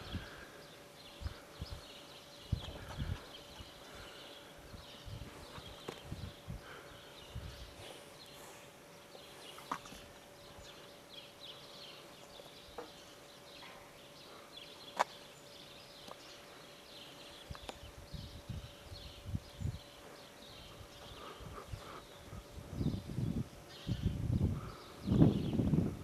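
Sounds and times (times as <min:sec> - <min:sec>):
faint steady hum: 0:00.0 - 0:26.0
small birds twittering: 0:00.0 - 0:26.0
low rumbles on microphone: 0:04.7 - 0:06.6, 0:20.8 - 0:26.0.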